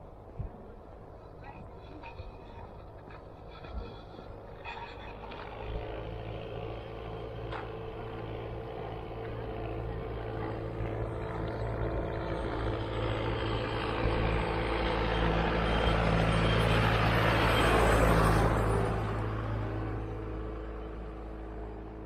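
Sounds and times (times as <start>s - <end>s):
tyre noise on dirt track: 1.3s - 13.8s
tractor engine passing: 1.8s - 22.0s.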